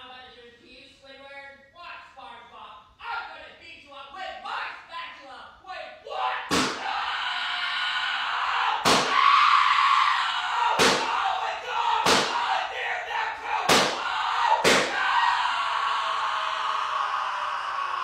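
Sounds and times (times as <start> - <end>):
people yelling: 6.1 - 18.0
sharp smacks: 6.5 - 6.8, 8.8 - 9.2, 10.8 - 11.1, 12.0 - 12.4, 13.7 - 14.0, 14.6 - 15.0.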